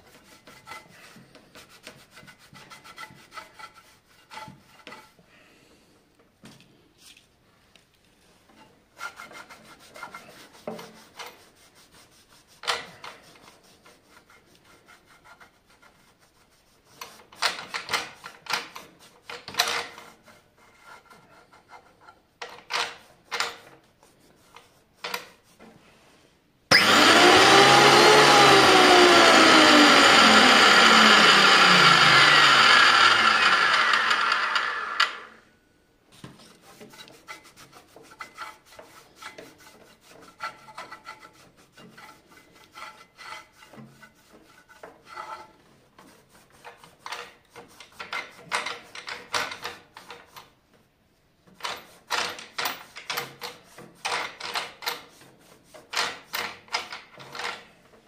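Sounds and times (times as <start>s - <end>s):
rag wiping rollers: 26.7s - 35.3s, 36.2s - 50.4s
planer motor running: 26.7s - 35.4s.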